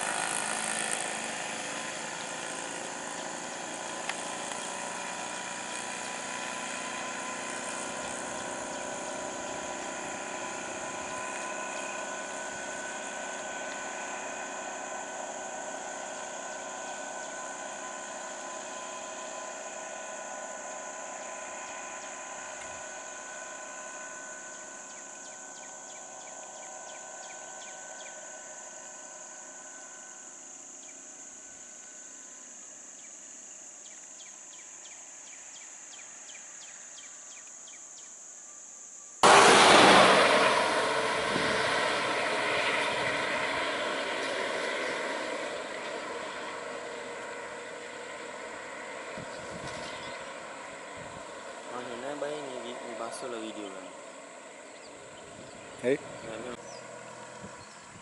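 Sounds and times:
vehicle engines idling: 0:00.0 - 0:37.1, 0:39.2 - 0:58.0
high insect drone: 0:00.0 - 0:58.0
sudden loud noise: 0:39.2 - 0:43.8.

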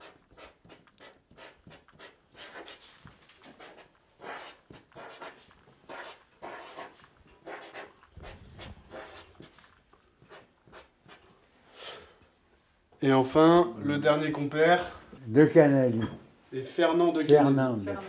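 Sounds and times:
marker pen scratching on paper: 0:00.0 - 0:11.4.

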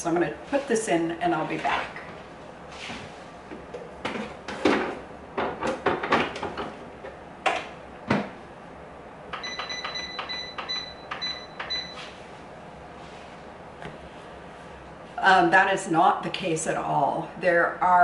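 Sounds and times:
short electronic beeps: 0:09.4 - 0:12.1.

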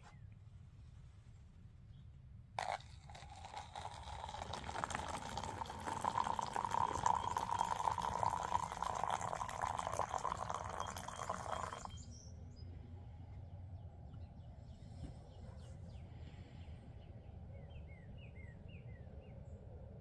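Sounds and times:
coffee pouring into a cup: 0:02.6 - 0:12.0.

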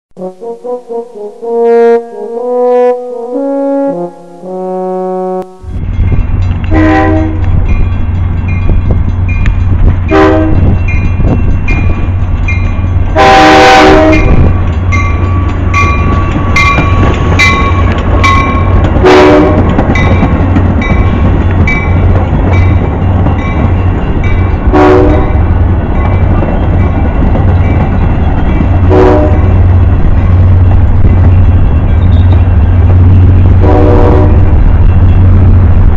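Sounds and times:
train horn blasts: 0:00.2 - 0:05.9, 0:06.6 - 0:07.7, 0:10.0 - 0:10.8, 0:13.1 - 0:14.9, 0:17.6 - 0:19.8, 0:24.6 - 0:25.6, 0:28.8 - 0:29.8, 0:33.4 - 0:35.2
passing train rumble: 0:00.2 - 0:35.9
crossing bell dinging: 0:05.4 - 0:35.7.

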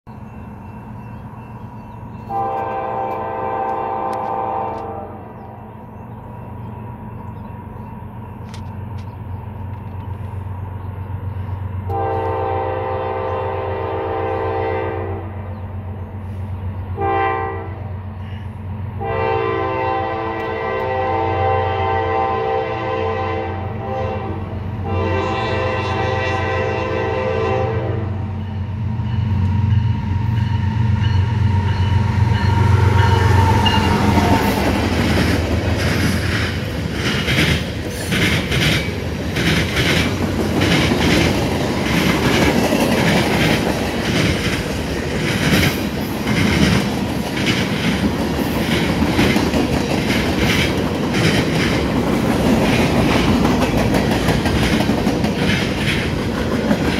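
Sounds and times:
locomotives rumbling past: 0:00.1 - 0:56.9
train horn chord: 0:02.2 - 0:05.6, 0:11.8 - 0:15.4, 0:17.0 - 0:18.4, 0:19.0 - 0:28.5, 0:31.2 - 0:34.8
train wheels clacking over rail joints: 0:32.4 - 0:56.9.

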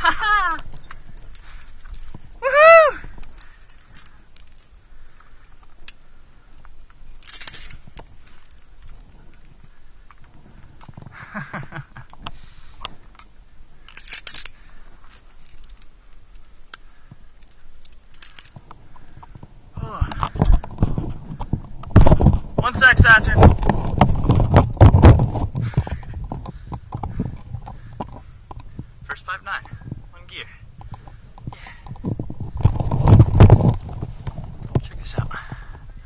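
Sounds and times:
carabiners clinking and jingling: 0:00.0 - 0:02.4, 0:03.1 - 0:06.0, 0:07.0 - 0:10.2, 0:13.2 - 0:18.7.

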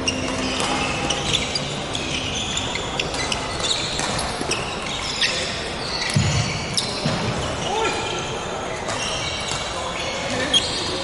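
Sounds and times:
shoes squeaking on wooden floor: 0:00.0 - 0:07.7
racket hitting shuttlecock: 0:00.2 - 0:01.5, 0:03.0 - 0:04.6.

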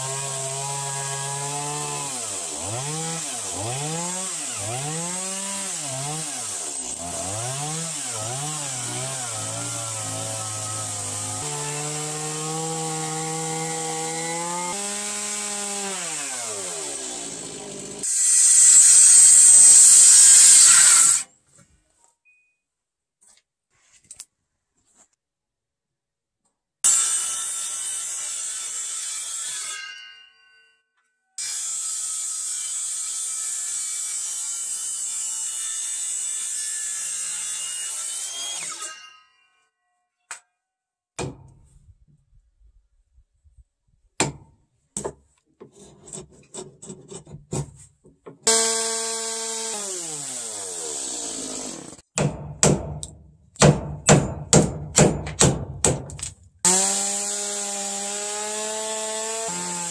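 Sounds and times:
chainsaw cutting timber: 0:00.0 - 0:21.3, 0:31.4 - 0:39.0, 0:48.4 - 0:59.9
circular saw cutting wood: 0:00.0 - 0:21.3, 0:26.8 - 0:30.0, 0:31.4 - 0:39.1, 0:48.4 - 0:52.1, 0:56.7 - 0:59.9.

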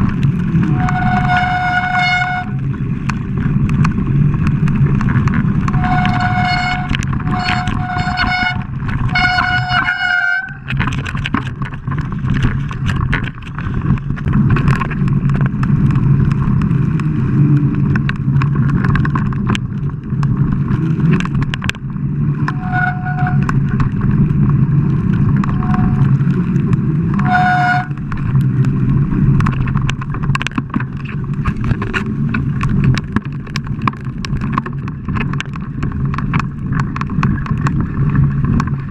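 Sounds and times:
bike rattling over bumps: 0:00.0 - 0:38.9
bike tyre rumble: 0:00.0 - 0:38.9
wind rush: 0:00.0 - 0:38.9
disc brakes squealing: 0:05.8 - 0:10.6.

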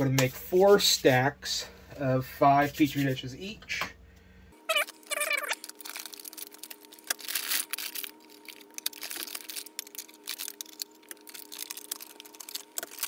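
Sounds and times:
plastic sleeve crinkling: 0:04.7 - 0:13.0.

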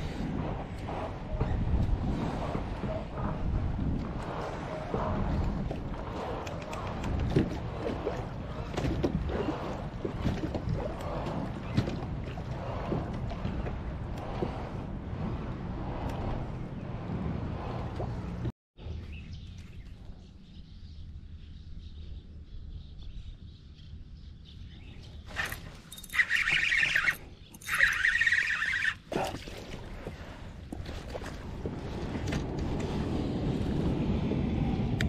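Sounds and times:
water lapping at a kayak: 0:00.0 - 0:18.5, 0:25.1 - 0:33.9
wind buffeting microphone: 0:00.0 - 0:19.5, 0:29.6 - 0:35.0
fishing reel buzzing: 0:25.3 - 0:29.0.

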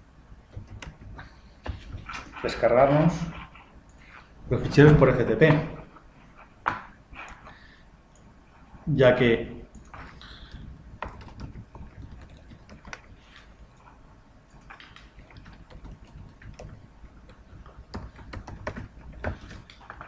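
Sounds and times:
typing on computer keyboard: 0:00.5 - 0:01.3, 0:09.7 - 0:13.9, 0:14.5 - 0:20.0.

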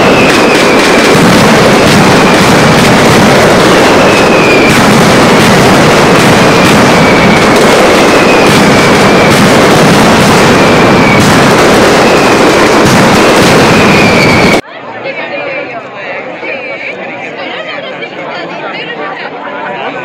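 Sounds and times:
firecracker barrage: 0:00.0 - 0:14.6
whistles falling in pitch: 0:03.9 - 0:04.8, 0:13.7 - 0:14.6.

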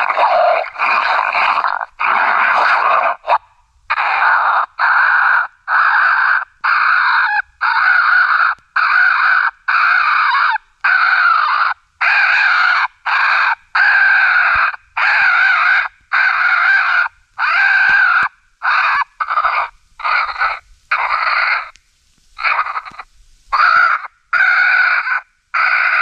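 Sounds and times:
raccoons squalling and screaming: 0:00.0 - 0:21.8, 0:22.4 - 0:26.0.

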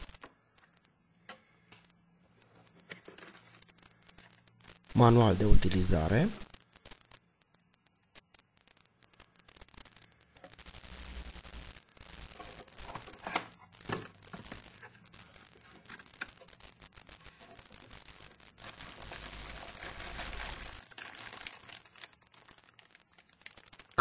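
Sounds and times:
plastic bag crinkling: 0:17.1 - 0:24.0.

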